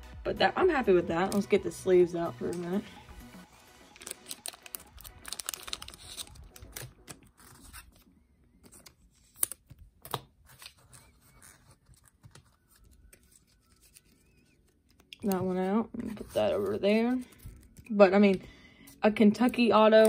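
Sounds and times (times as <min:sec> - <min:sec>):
plastic sleeves crinkling: 0:03.8 - 0:18.4.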